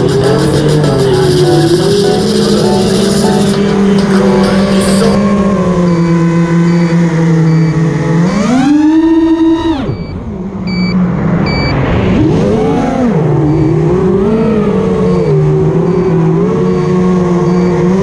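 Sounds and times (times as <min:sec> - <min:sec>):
short high beeps: 0:00.0 - 0:03.9, 0:05.8 - 0:07.9, 0:09.9 - 0:11.8, 0:13.4 - 0:13.8, 0:15.0 - 0:18.0
drone motors whining: 0:00.0 - 0:18.0.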